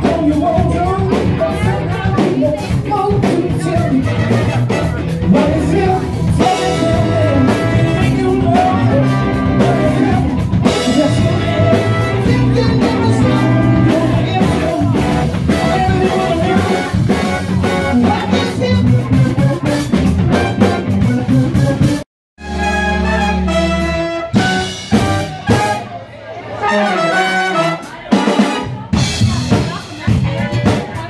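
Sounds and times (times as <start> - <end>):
person singing: 0.0 - 22.0
live rock band playing: 0.0 - 31.0.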